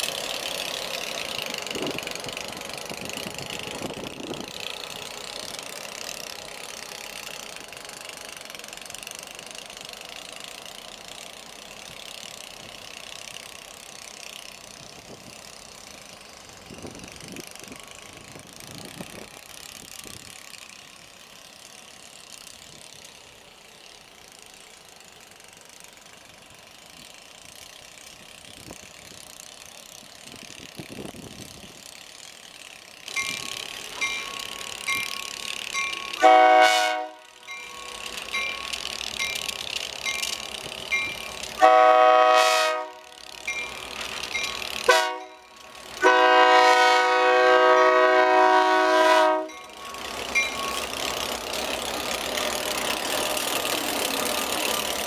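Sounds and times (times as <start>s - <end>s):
diesel locomotives running: 0.0s - 55.0s
crossing signal bell ringing: 33.1s - 41.8s, 43.3s - 46.2s, 49.0s - 52.8s
locomotive air horn blast: 36.2s - 37.4s, 41.6s - 43.1s, 44.9s - 45.3s, 46.0s - 49.6s.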